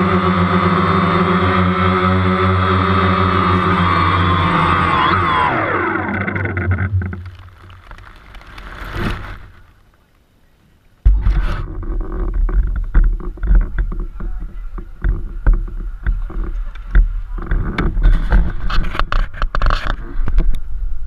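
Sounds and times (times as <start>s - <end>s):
drone propellers whining: 0.0s - 9.8s
handling noise on microphone: 6.1s - 10.2s, 11.1s - 20.6s.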